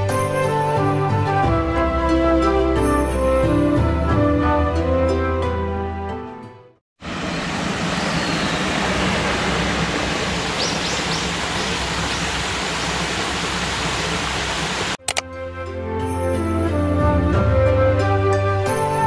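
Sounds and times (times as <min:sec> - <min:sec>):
background music: 0:00.0 - 0:06.8, 0:15.0 - 0:19.0
waterfall splashing over rocks: 0:07.1 - 0:15.0.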